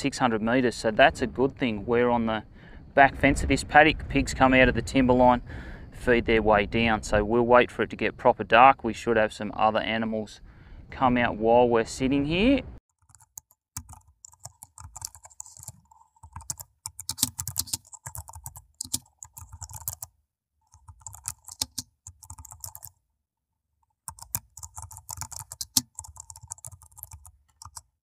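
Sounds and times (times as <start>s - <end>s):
keyboard typing: 12.9s - 23.0s, 23.8s - 27.9s.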